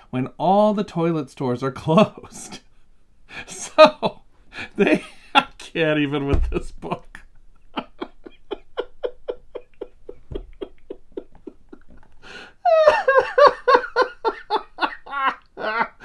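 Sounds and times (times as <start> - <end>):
man laughing: 3.3 - 5.7, 6.4 - 16.0.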